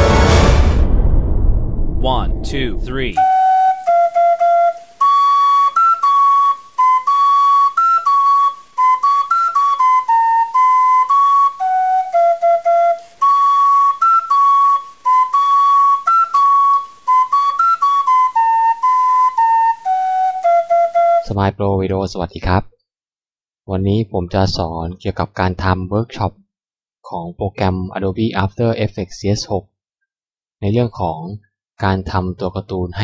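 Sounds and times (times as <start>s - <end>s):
solo flute melody: 3.2s - 21.3s.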